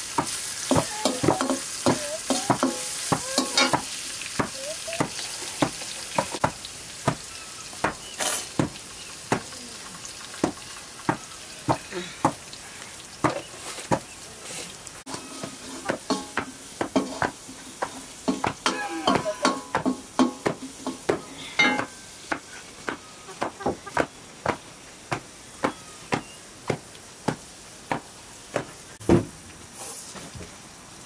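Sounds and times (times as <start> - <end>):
food sizzling in a wok: 0.0 - 31.0
metal ladle scraping a pan: 8.1 - 8.6, 15.1 - 22.1.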